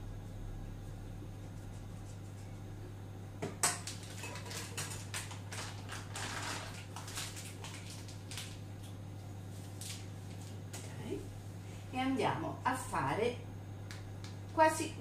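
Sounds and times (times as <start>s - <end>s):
steady low hum: 0.0s - 15.0s
plastic bag rustling: 3.8s - 10.6s.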